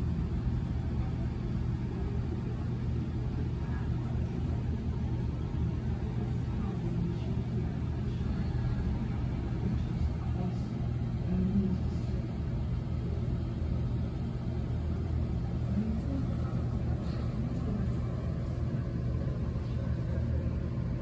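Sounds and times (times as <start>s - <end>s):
faint indistinct voices: 0.0s - 21.0s
low hum and rumble: 0.0s - 21.0s.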